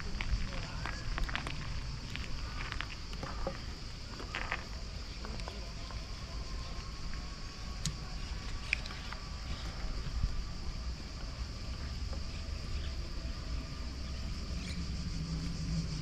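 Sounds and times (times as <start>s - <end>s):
wind and riding rumble: 0.0s - 16.0s
small clicks and ticks: 7.8s - 9.2s.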